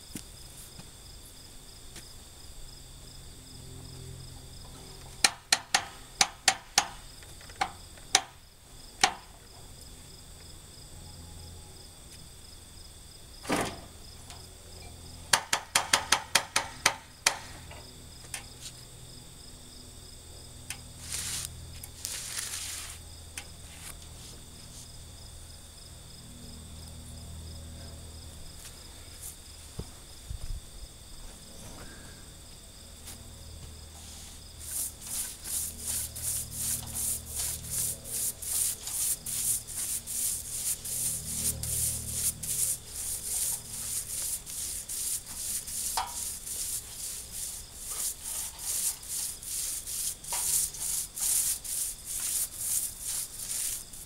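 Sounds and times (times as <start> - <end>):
insects trilling: 0.0 - 54.0
dull thump: 13.4 - 13.9
metallic knocks on metal frame: 15.3 - 17.5.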